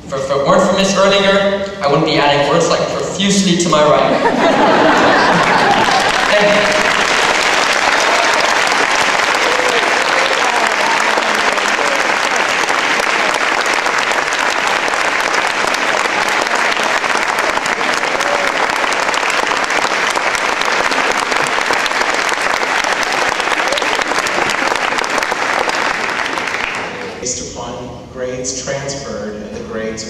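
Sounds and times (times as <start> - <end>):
large audience applauding: 4.2 - 27.2.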